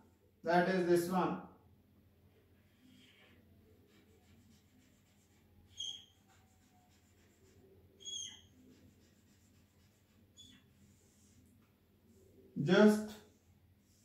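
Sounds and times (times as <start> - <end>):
faint marker scratching: 2.4 - 12.4, 13.1 - 14.0
whiteboard marker squeaking: 3.9 - 11.4.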